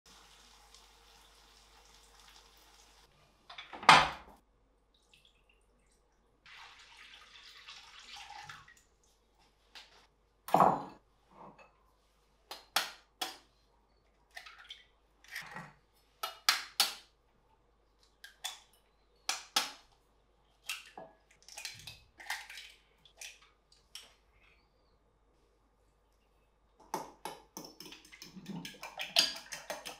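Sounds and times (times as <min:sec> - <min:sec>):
knife cracking eggshells: 0:19.3 - 0:19.8.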